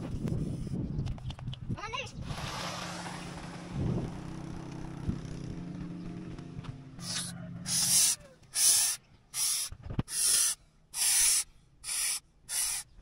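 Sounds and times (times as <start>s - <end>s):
sprayer hissing: 7.0s - 12.9s.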